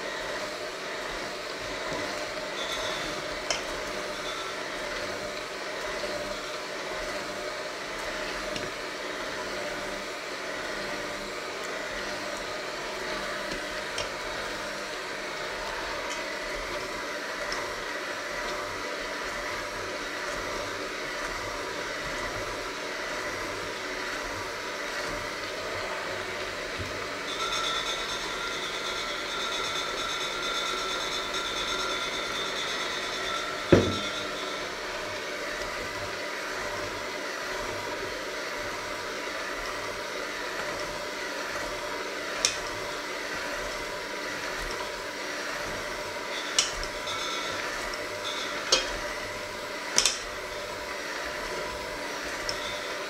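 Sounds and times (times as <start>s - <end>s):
electric hand mixer running: 0.0s - 53.0s
higher whine: 27.2s - 34.8s.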